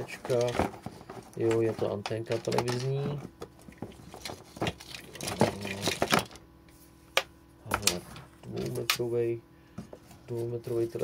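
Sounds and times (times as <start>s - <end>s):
cables and plugs clattering: 0.0s - 6.4s.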